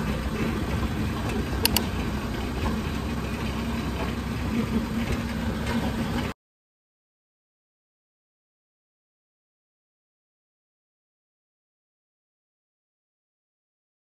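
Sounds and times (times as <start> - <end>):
motorcycle engine running: 0.0 - 6.2
sharp clicks: 1.6 - 1.9.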